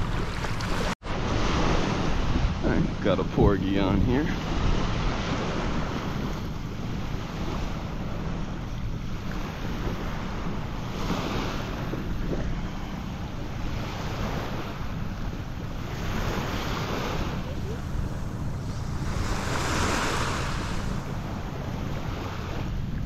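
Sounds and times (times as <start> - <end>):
small waves washing on a beach: 0.0 - 23.0
wind buffeting microphone: 0.0 - 23.0.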